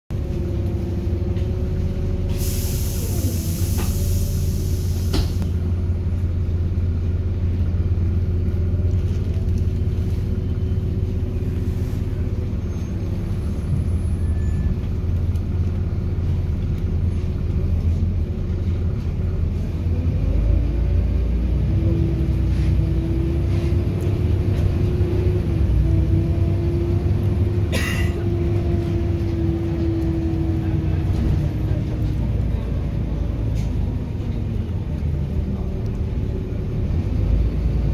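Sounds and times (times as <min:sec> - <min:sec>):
bus diesel engine rumble: 0:00.1 - 0:37.9
air hiss: 0:02.3 - 0:05.4.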